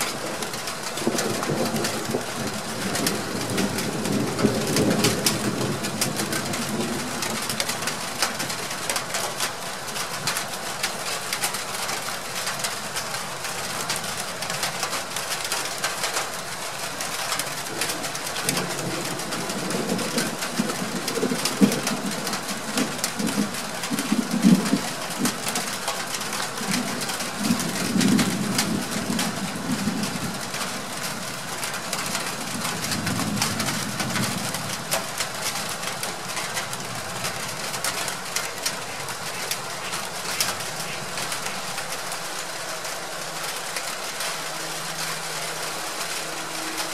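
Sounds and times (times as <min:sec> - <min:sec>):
distant thunder rumbling: 0:00.0 - 0:08.5, 0:17.7 - 0:25.7, 0:26.6 - 0:41.8
steady hiss: 0:35.3 - 0:46.9.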